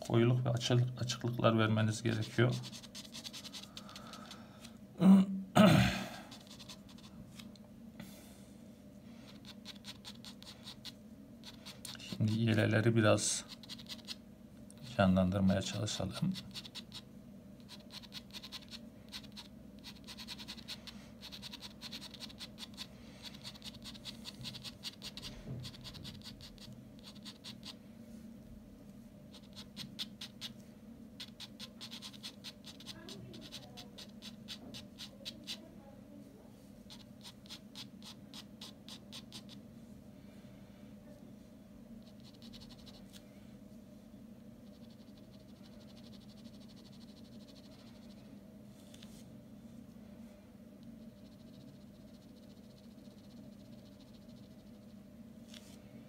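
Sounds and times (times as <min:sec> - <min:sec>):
pen scratching on paper: 0:02.0 - 0:03.9, 0:06.3 - 0:07.1, 0:09.3 - 0:12.6, 0:13.2 - 0:14.2, 0:15.9 - 0:27.8, 0:29.3 - 0:30.6, 0:31.2 - 0:35.7, 0:36.9 - 0:39.6, 0:42.0 - 0:43.1, 0:44.6 - 0:48.2, 0:51.0 - 0:54.9.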